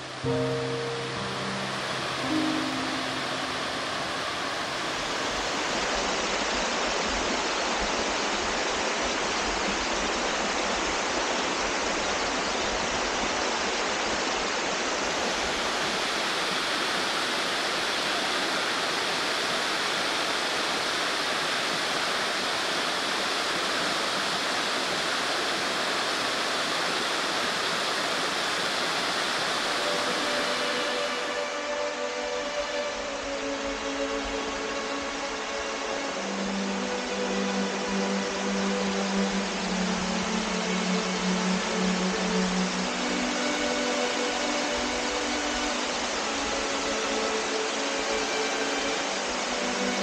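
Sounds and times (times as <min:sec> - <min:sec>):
water rushing over rock: 0:01.2 - 0:31.4.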